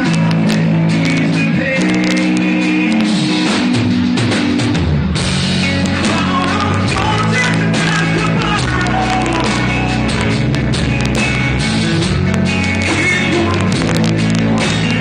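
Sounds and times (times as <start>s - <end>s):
man singing: 0.0s - 3.7s, 5.9s - 10.3s, 12.8s - 15.0s
drum kit: 0.0s - 15.0s
electric guitar: 0.0s - 15.0s.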